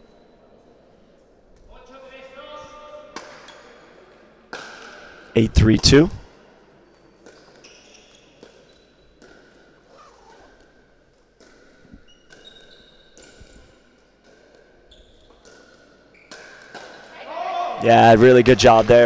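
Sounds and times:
sneakers squeaking on court floor: 7.0s - 17.1s.

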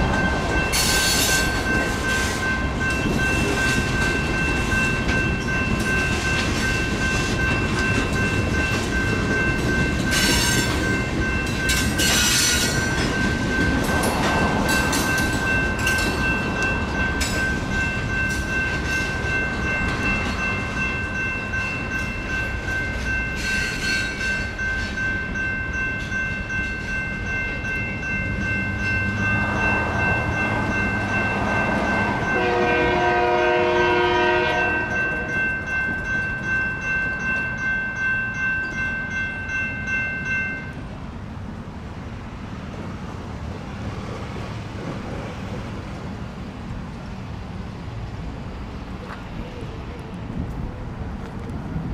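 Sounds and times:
freight train wheels clattering: 0.0s - 40.3s
electronic crossing bell ringing: 0.0s - 40.8s
train horn pulses: 32.4s - 35.1s.

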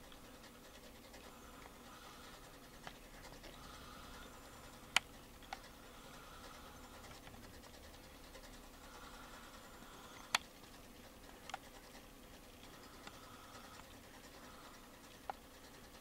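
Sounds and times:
electric clock humming: 0.0s - 16.0s
sharp clicks: 4.9s - 5.7s.

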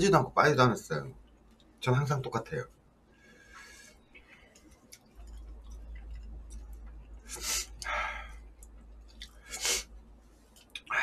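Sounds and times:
person blowing nose: 9.5s - 9.8s.

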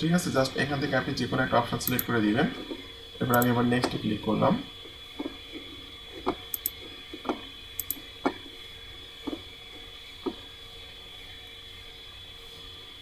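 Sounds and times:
low steady hum: 0.0s - 13.0s
computer mouse clicks: 1.8s - 2.1s, 3.3s - 4.0s, 6.2s - 8.1s.

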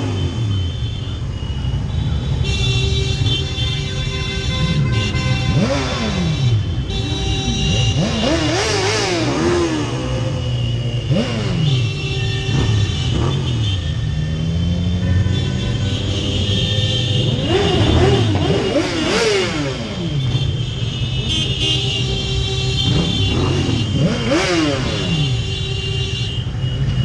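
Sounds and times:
motorcycle engines revving: 0.0s - 27.0s.

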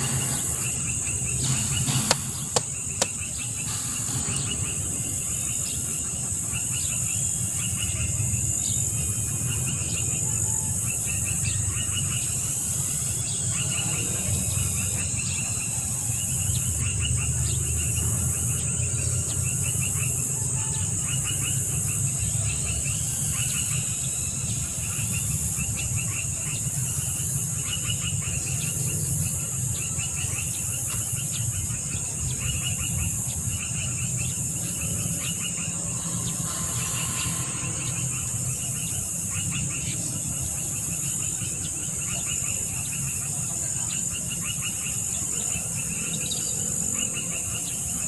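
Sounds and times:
high-pitched insect hum: 0.0s - 48.0s
rapid insect chirps: 0.0s - 48.0s
pulsing insect buzz: 33.6s - 40.4s.

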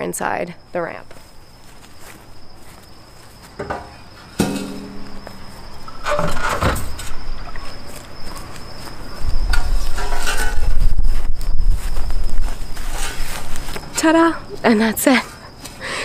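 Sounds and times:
crickets trilling: 0.0s - 16.0s
metal ramp knocking and clanking: 3.6s - 5.4s
tire scraping on metal: 3.7s - 7.1s, 9.5s - 11.2s, 12.4s - 13.8s.

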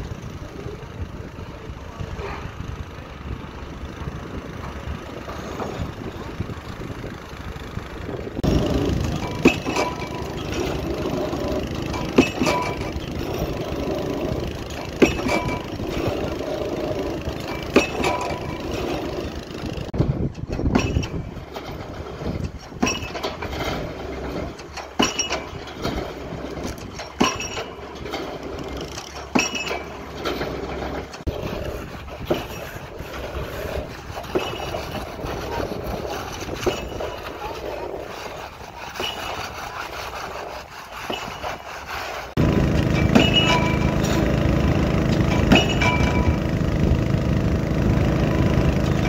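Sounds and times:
excavator engine running: 0.0s - 49.0s
pile hammer striking concrete: 9.0s - 13.5s, 14.7s - 19.2s, 20.6s - 21.3s, 22.7s - 23.5s, 24.7s - 31.3s, 42.4s - 46.6s.

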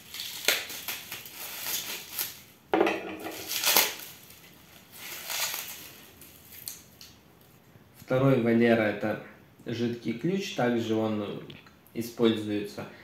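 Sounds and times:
knife slicing plastic wrap: 0.0s - 2.5s, 3.3s - 6.9s
plastic film crinkling: 0.0s - 2.6s, 3.2s - 7.6s.

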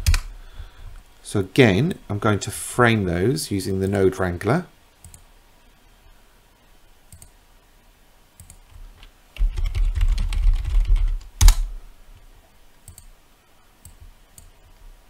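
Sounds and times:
typing on computer keyboard: 9.4s - 11.6s.

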